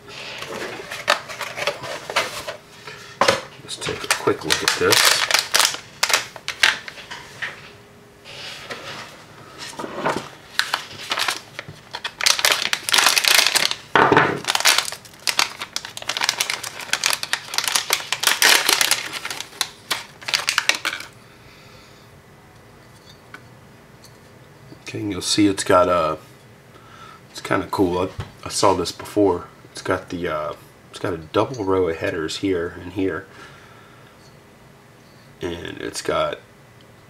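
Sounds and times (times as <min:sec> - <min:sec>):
plastic bag crinkling: 0:03.8 - 0:07.0, 0:10.5 - 0:21.2.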